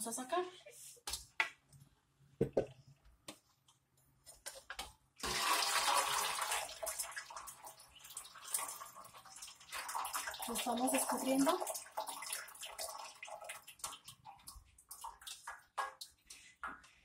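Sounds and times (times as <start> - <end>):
water draining through colander: 5.2 - 16.9.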